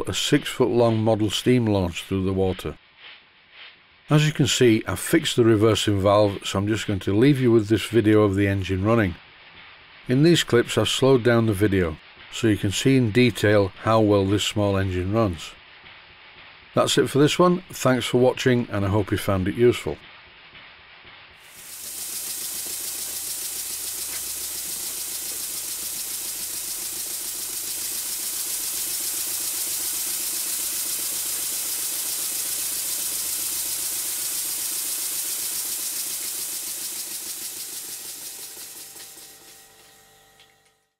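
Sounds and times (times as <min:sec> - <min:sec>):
model steam engine running: 0:21.4 - 0:40.6.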